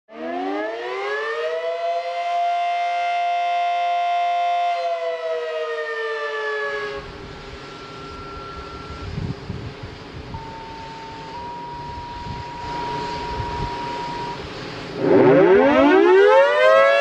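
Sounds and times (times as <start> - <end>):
wind noise: 7.0 - 15.9
warning siren winding: 10.3 - 14.4, 15.0 - 17.0.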